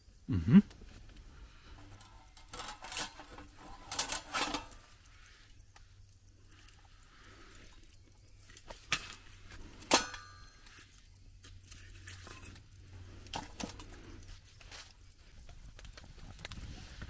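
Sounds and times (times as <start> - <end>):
metallic ring: 1.8 - 5.6, 8.8 - 14.2.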